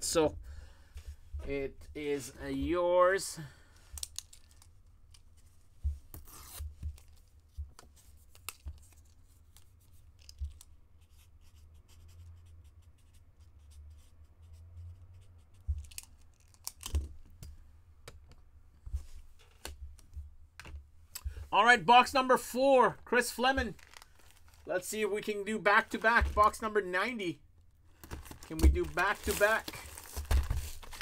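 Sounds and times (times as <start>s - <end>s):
handling trading cards and packaging: 3.2s - 11.2s, 15.6s - 17.6s, 18.9s - 31.0s.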